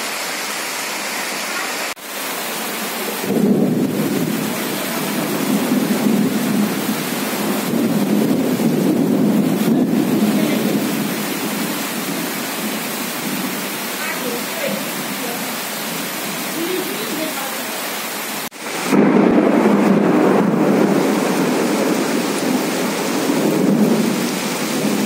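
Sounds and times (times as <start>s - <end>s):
heavy rain: 0.0s - 25.0s
thunder rolling: 3.2s - 13.5s, 18.6s - 25.0s.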